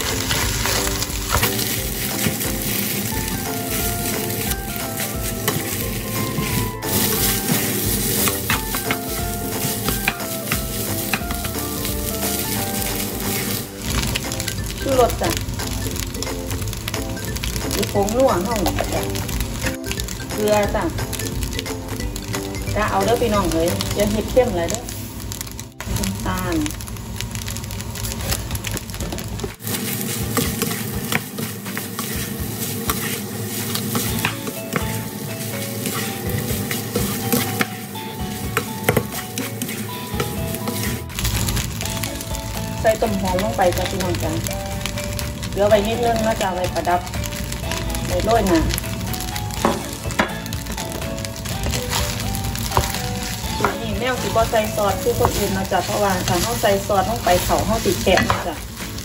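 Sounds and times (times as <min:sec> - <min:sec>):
spatula clicking and scraping: 0:00.0 - 0:14.8, 0:28.0 - 0:42.2, 0:47.6 - 0:59.0
rice sizzling in a pot: 0:00.0 - 0:59.0.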